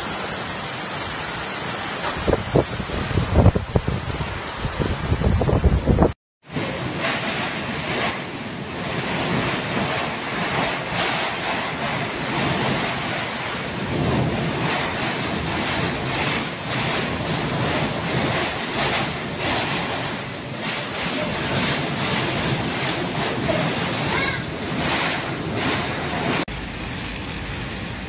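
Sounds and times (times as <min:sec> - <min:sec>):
driving rain: 0:00.0 - 0:28.0
strong gusting wind: 0:00.0 - 0:28.0
wind buffeting microphone: 0:01.8 - 0:28.0.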